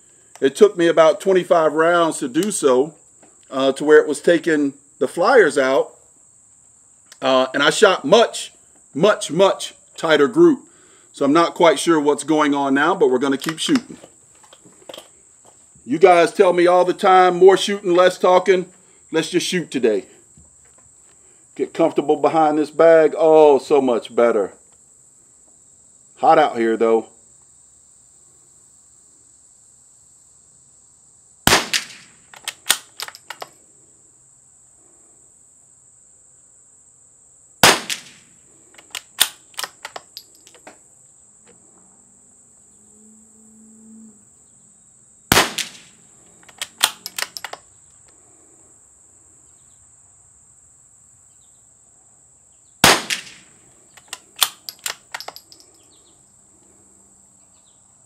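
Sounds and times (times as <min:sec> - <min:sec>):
high insect buzz: 0:00.0 - 0:58.0
metallic clicks of rifle bolt: 0:13.4 - 0:15.1, 0:31.7 - 0:33.6, 0:37.9 - 0:40.8, 0:45.6 - 0:47.7, 0:53.1 - 0:55.8
rifle shots: 0:31.5 - 0:33.4, 0:37.6 - 0:38.3, 0:45.3 - 0:47.6, 0:52.8 - 0:53.5.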